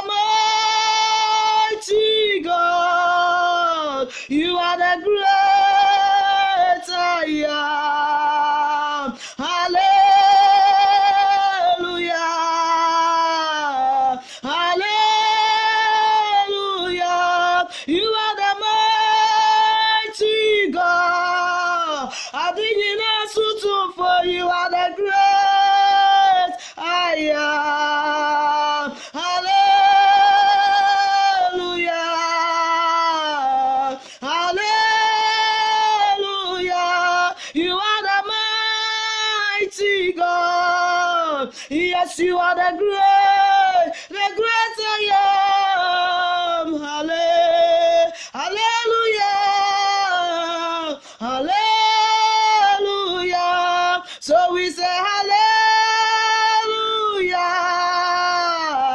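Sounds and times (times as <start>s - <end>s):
woman singing solo: 0.0s - 58.9s.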